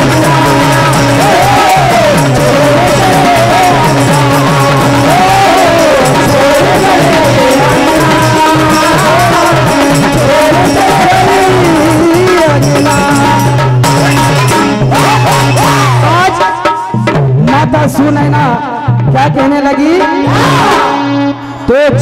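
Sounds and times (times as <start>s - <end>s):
harmonium drone: 0.0s - 16.8s
person singing: 0.0s - 17.0s, 18.1s - 22.0s
drum beat: 0.0s - 20.9s.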